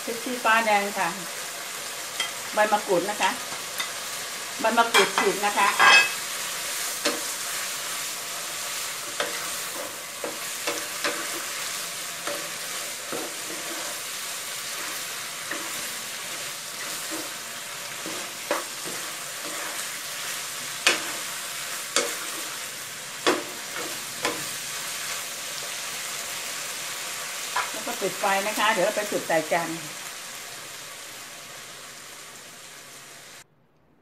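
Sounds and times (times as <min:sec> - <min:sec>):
food sizzling in a wok: 0:00.0 - 0:33.4
spatula scraping and knocking pan: 0:04.9 - 0:08.0, 0:08.6 - 0:25.9.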